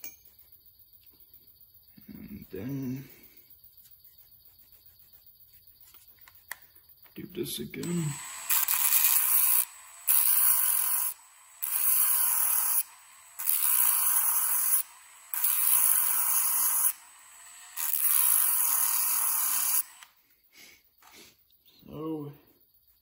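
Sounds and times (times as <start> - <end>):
rotary tool grinding copper: 7.8 - 20.2.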